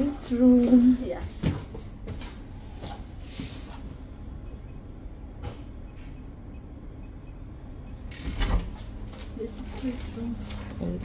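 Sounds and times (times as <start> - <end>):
low machinery rumble: 0.0 - 11.0
door opening clatter: 8.1 - 8.9.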